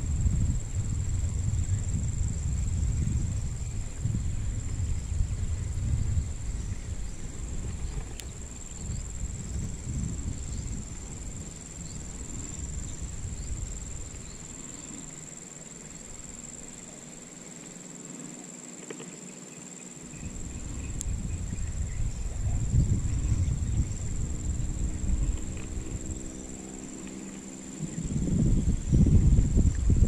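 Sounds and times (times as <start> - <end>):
wind rumbling on microphone: 0.0 - 17.4, 20.0 - 30.0
high-pitched insect drone: 0.0 - 30.0.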